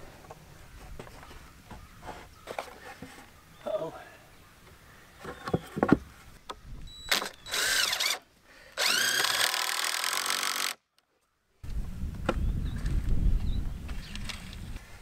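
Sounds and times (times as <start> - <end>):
cordless drill driving screw: 7.1 - 8.2, 8.8 - 10.8.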